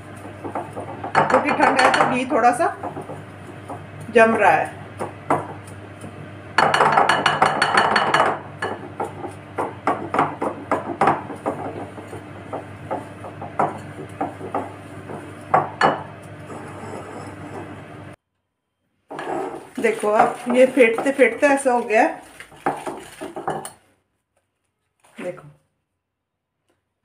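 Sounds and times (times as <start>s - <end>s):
spoon knocking against glass bowl: 6.6s - 16.2s.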